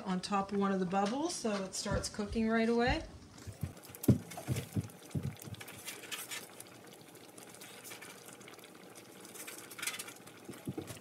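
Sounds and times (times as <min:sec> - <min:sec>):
broth bubbling in a pan: 0:03.2 - 0:11.0
soft knocks: 0:03.6 - 0:05.6.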